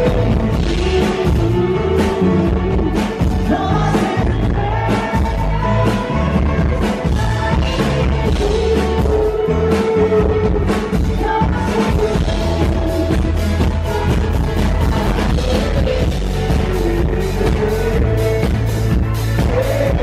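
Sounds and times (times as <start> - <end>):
electric guitar: 0.0 - 20.0
man singing: 0.0 - 20.0
steady drum beat: 0.0 - 20.0.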